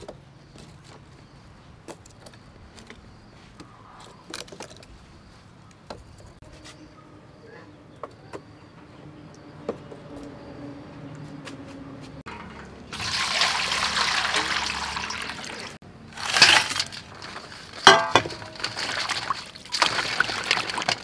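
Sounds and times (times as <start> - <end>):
paper and charcoal crackling: 14.4 - 21.0
metal rod poking charcoal: 16.2 - 18.7.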